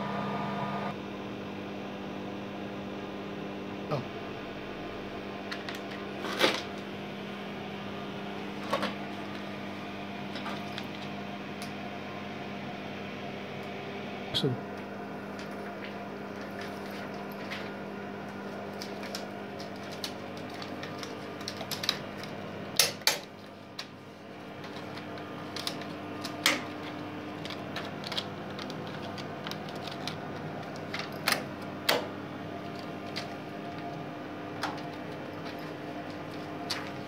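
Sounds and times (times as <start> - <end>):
steady hum: 0.0 - 37.0
film projector clicks and knocks: 18.8 - 23.9, 24.7 - 32.1.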